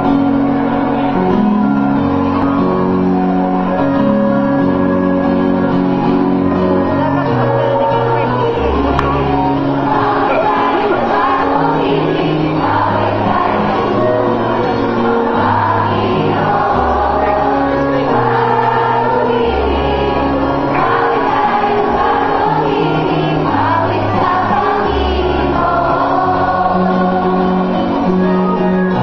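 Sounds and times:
choir singing: 0:00.0 - 0:29.0.

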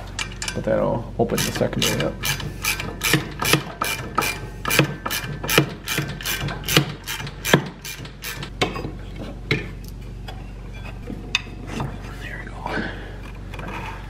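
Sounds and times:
ratchet wrench clicking: 0:01.4 - 0:08.5.

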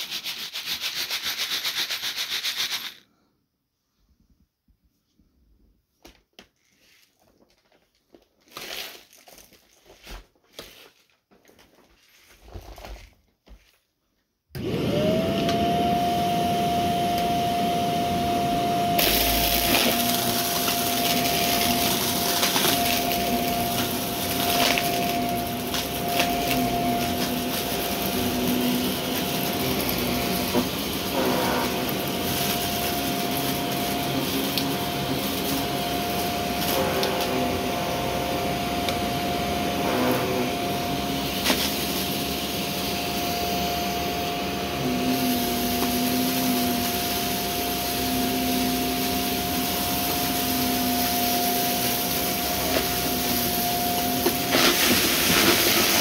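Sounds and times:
vacuum cleaner motor whine: 0:14.5 - 0:56.0.

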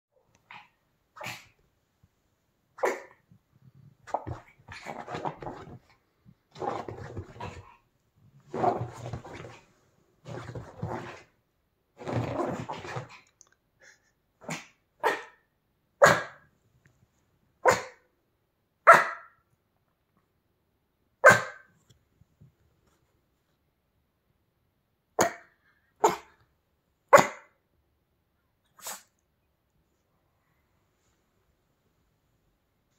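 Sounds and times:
small dog barking: 0:02.8 - 0:03.2, 0:14.4 - 0:15.4, 0:16.0 - 0:16.4, 0:17.6 - 0:18.0, 0:18.8 - 0:19.4, 0:21.2 - 0:21.7, 0:25.2 - 0:26.4, 0:27.1 - 0:27.6.

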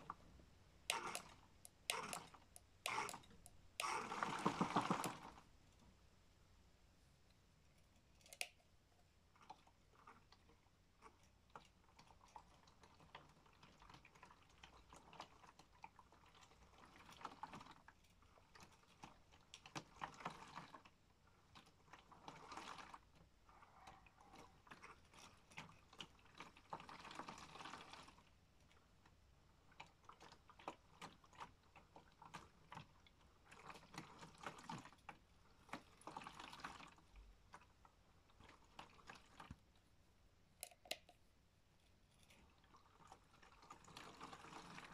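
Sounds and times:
toy washing machine sloshing: 0:00.0 - 0:05.6, 0:09.2 - 0:39.8, 0:42.2 - 0:44.9
small plastic clicks: 0:00.0 - 0:05.9, 0:07.3 - 0:08.8, 0:40.6 - 0:41.2.

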